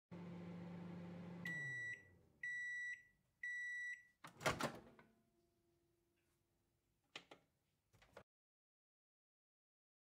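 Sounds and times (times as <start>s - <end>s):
microwave oven humming: 0.1s - 2.7s
microwave beeps: 1.3s - 4.2s.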